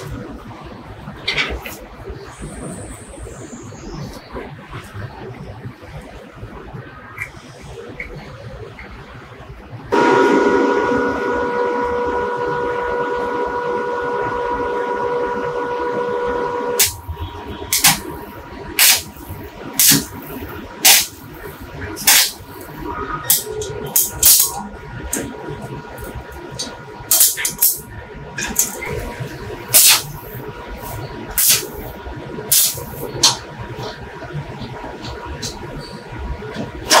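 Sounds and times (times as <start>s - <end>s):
welding arc crackling: 14.6s - 35.7s.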